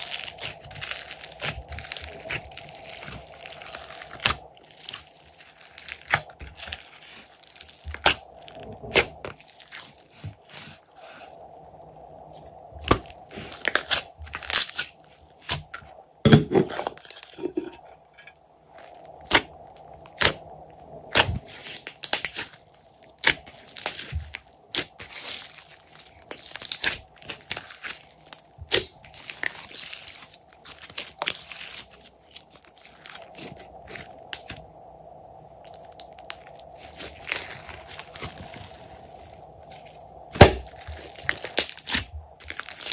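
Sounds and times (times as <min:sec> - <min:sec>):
hands squishing slime: 0:00.0 - 0:11.3, 0:12.8 - 0:15.8, 0:23.2 - 0:34.6, 0:35.8 - 0:42.9.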